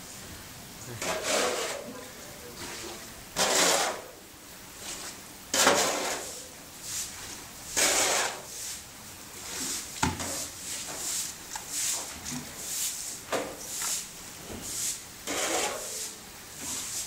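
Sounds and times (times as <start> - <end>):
floodwater swishing and splashing: 1.0 - 4.0.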